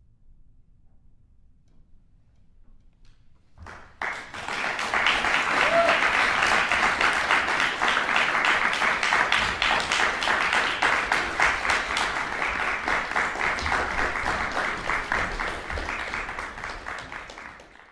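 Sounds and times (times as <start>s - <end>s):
audience applauding: 3.6s - 17.9s.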